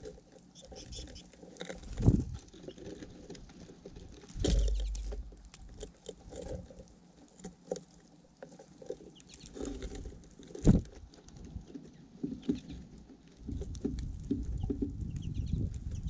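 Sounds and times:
birds pecking in seed: 0:00.0 - 0:16.0
thump with low rumble: 0:04.4 - 0:05.4.

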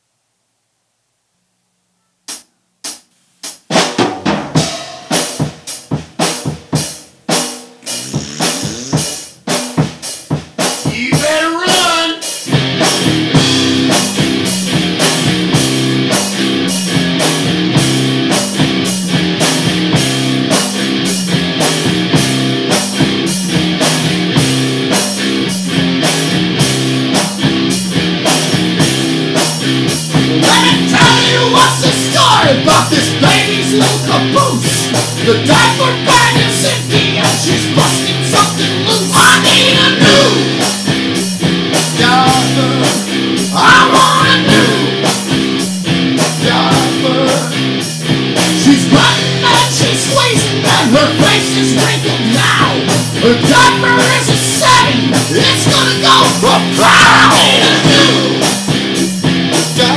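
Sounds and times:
drum kit playing: 0:02.3 - 0:59.9
bass guitar: 0:04.3 - 0:59.9
electric guitar riff: 0:07.7 - 0:09.7, 0:12.5 - 0:59.9.

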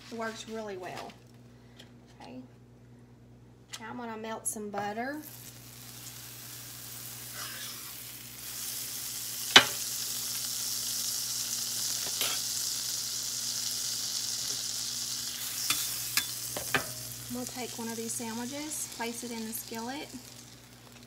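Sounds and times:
butter sizzling in a skillet: 0:05.2 - 0:21.0.

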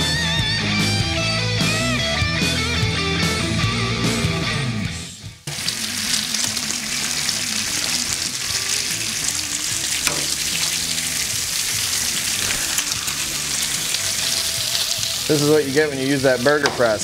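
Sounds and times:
background music: 0:00.0 - 0:17.0
bacon sizzling on a griddle: 0:05.5 - 0:17.0.

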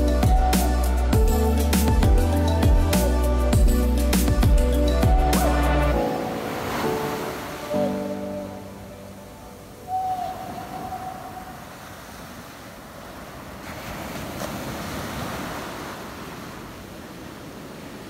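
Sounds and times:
ocean surf breaking: 0:05.4 - 0:18.0.

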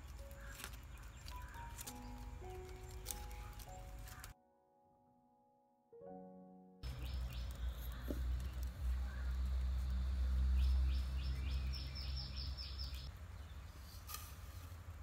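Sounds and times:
bird chirping: 0:00.0 - 0:04.4, 0:06.8 - 0:14.0.

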